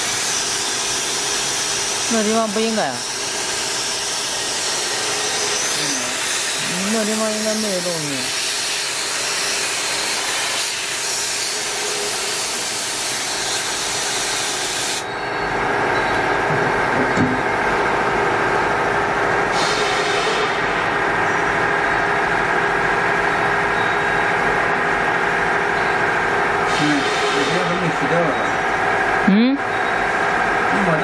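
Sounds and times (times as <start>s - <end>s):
machine humming: 0.0s - 31.0s
air hissing from nozzle: 8.1s - 15.0s, 19.5s - 20.5s.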